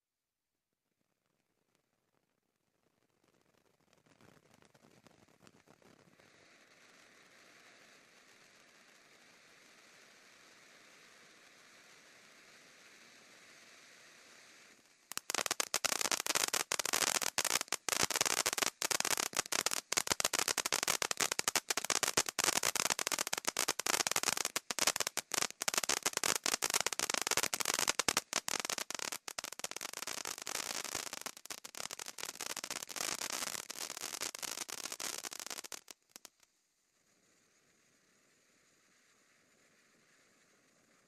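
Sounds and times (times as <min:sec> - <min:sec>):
firework crackling: 0:01.8 - 0:41.0
hiss of spraying sparks: 0:09.6 - 0:36.4.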